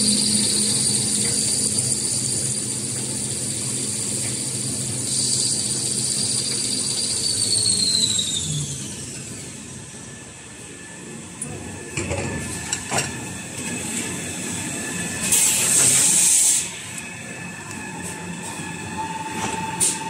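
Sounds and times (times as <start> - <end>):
machine humming: 0.0 - 15.5.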